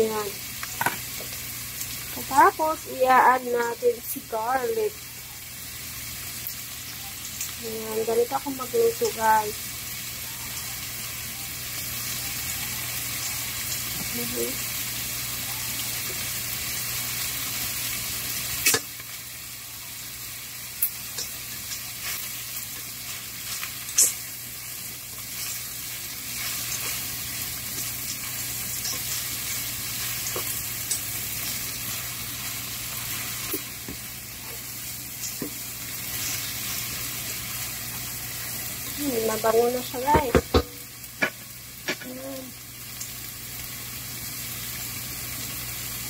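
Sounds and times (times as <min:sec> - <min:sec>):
food sizzling in a frying pan: 0:00.0 - 0:46.0
spatula knocking and scraping pan: 0:40.0 - 0:42.2.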